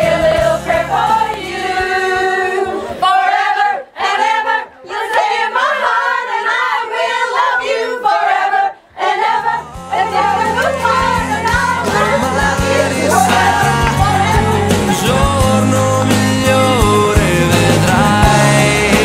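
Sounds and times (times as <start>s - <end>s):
backing music track: 0.0s - 3.0s, 9.0s - 19.0s
group singing unaccompanied: 0.0s - 19.0s.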